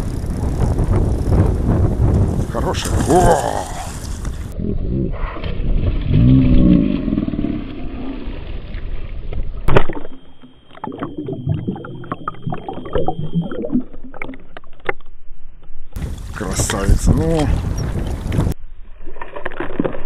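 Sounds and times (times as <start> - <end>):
water around boat: 0.0 - 20.0
thin steady whine: 9.7 - 14.2.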